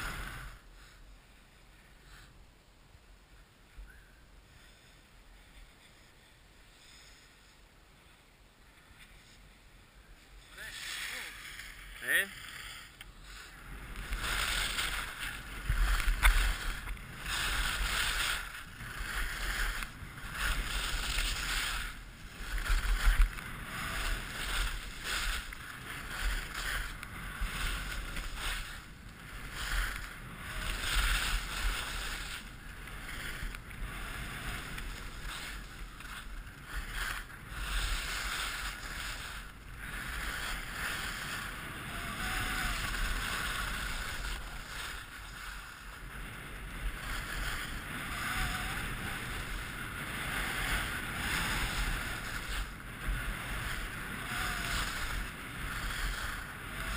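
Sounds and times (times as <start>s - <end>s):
skis scraping on snow: 0.0s - 2.3s, 4.4s - 56.9s
wind rumble on microphone: 13.6s - 56.9s.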